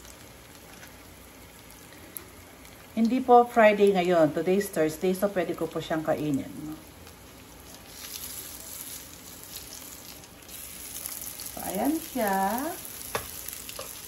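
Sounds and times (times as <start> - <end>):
sausages sizzling in a frying pan: 0.0 - 14.0.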